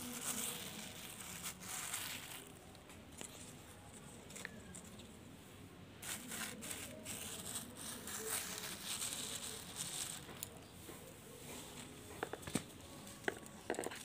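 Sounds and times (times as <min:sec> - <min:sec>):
hand digging in soil: 0:00.0 - 0:02.6, 0:06.0 - 0:10.7
plastic bag crinkling: 0:00.0 - 0:05.0, 0:06.0 - 0:10.7.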